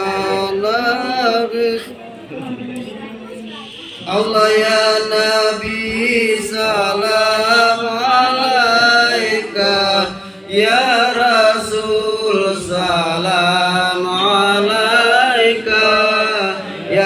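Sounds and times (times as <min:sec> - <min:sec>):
man chanting through a pa: 0:04.0 - 0:17.0.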